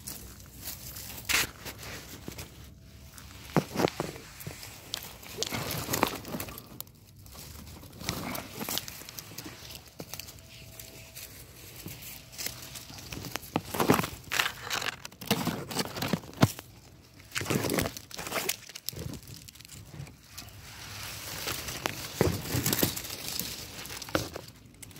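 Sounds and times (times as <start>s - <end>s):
footsteps crunching through dry leaves: 0.0s - 14.9s.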